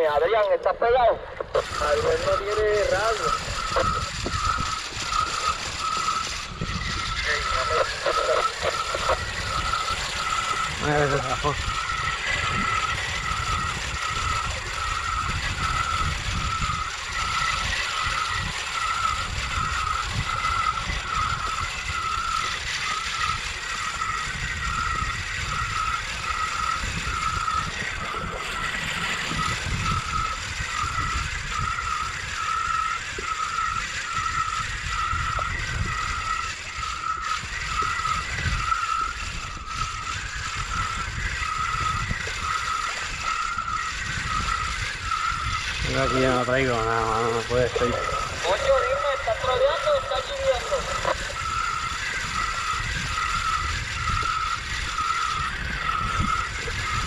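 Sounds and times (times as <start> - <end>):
wind and water rumble: 0.0 - 57.0
kayak pedal drive squeaking: 1.6 - 57.0.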